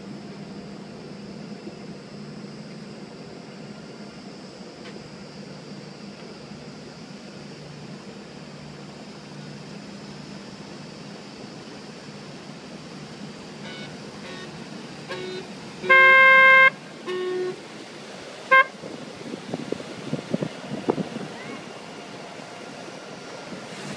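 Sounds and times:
boat horn toots: 13.6 - 17.6, 18.5 - 18.8.

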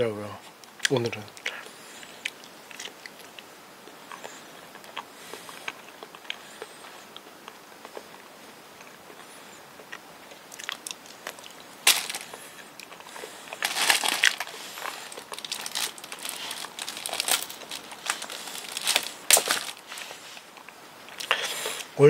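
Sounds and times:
plastic bag crinkling: 10.5 - 20.6
sharp cracks: 10.5 - 21.4.

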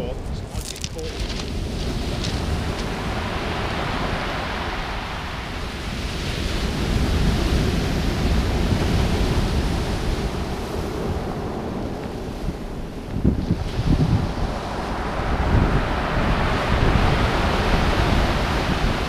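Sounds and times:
wind rumbling on microphone: 0.0 - 19.0
surf breaking on pebble beach: 0.5 - 11.1.

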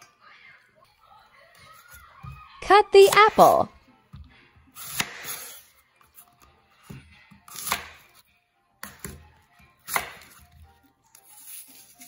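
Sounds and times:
knife cutting apple on board: 4.8 - 8.2, 9.8 - 10.5.

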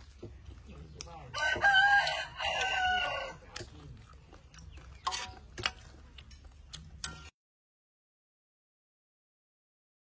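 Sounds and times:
rooster crowing: 1.3 - 3.4.

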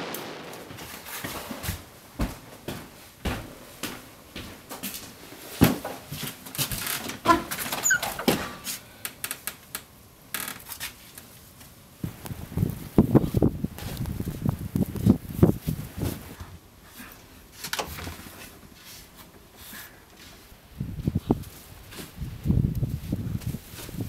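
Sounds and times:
creaky squeaks: 6.7 - 8.6
door opening: 6.7 - 8.7.

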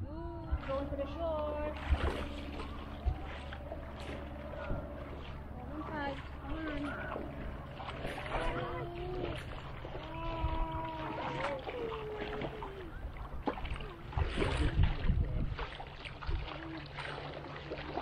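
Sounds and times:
wading through shallow water: 0.0 - 18.0
distant voice calling out: 6.4 - 13.1.

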